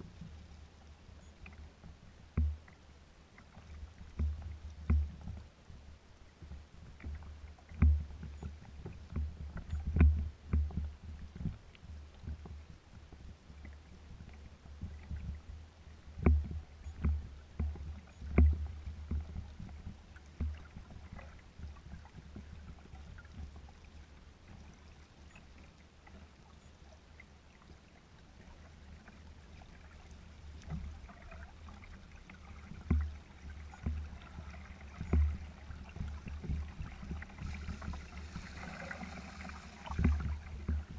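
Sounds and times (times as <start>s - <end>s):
waves slapping against a hull: 6.4s - 26.3s, 28.4s - 40.9s.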